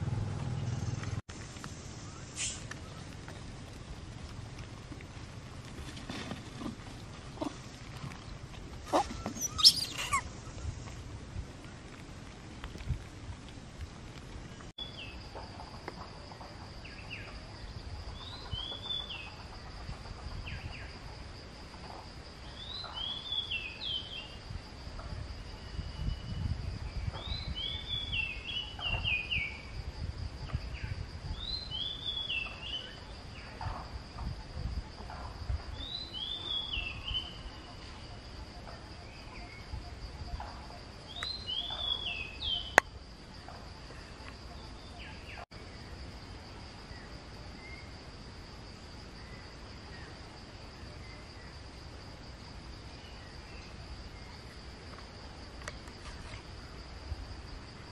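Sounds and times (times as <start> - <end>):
low wind rumble: 0.0 - 55.6
bird singing: 7.3 - 10.7, 14.8 - 15.3, 16.4 - 21.0, 22.4 - 24.4, 25.6 - 29.7, 30.5 - 33.6, 35.7 - 42.8, 43.8 - 46.0
high insect drone: 14.4 - 57.9.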